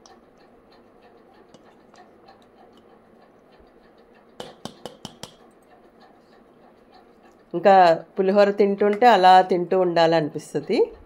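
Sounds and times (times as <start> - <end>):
spatula clicking against steel bowl: 0.0 - 5.7
spatula scraping bowl: 0.0 - 9.6.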